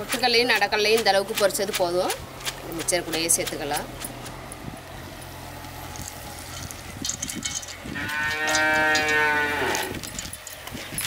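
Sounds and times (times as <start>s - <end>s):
cow mooing: 8.0s - 10.0s.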